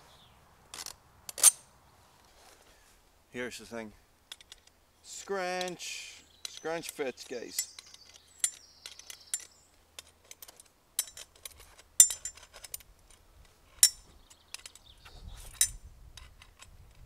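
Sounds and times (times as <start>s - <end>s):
metal parts clicking and clinking: 0.7s - 1.6s, 4.3s - 4.8s, 6.4s - 13.2s.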